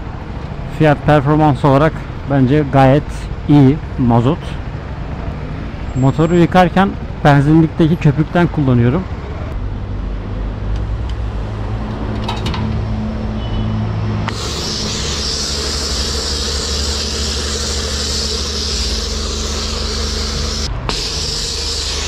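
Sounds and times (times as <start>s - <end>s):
pressurised foam spraying hiss: 14.3s - 22.0s.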